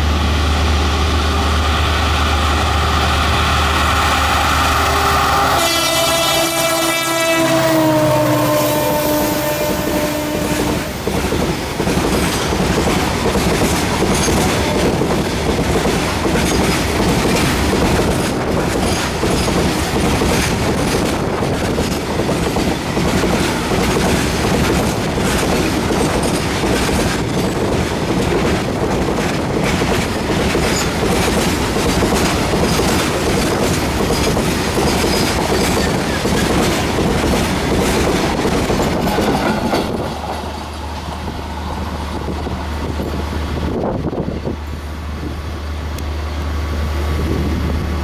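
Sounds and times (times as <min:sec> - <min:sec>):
freight train wheels clattering: 0:09.6 - 0:44.5.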